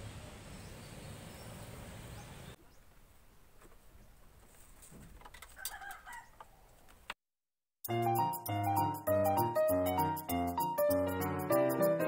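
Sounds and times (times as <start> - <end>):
faint outdoor background noise: 0.0 - 7.2.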